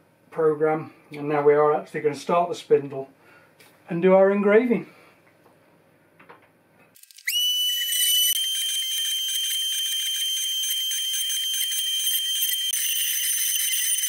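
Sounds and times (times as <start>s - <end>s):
router spindle motor whine: 7.1s - 14.0s.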